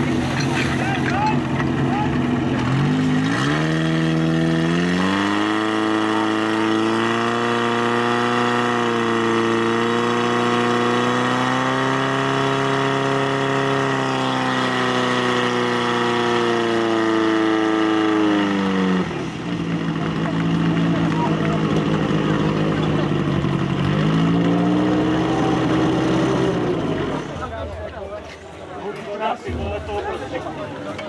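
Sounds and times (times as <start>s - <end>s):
fire pump engine running: 0.0s - 31.0s.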